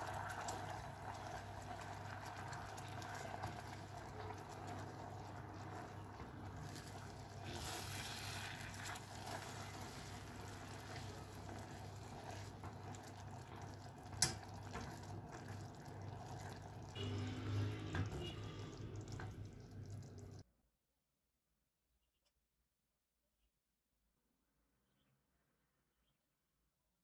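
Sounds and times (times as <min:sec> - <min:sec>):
sauce bubbling and sizzling: 0:00.0 - 0:20.4
spatula stirring in a saucepan: 0:00.0 - 0:20.4.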